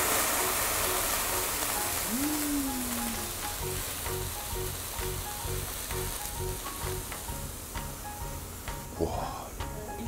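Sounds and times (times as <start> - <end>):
flames burning: 0.0 - 10.0
meat sizzling on hot platter: 0.0 - 10.0
music with steady beat: 2.8 - 10.0.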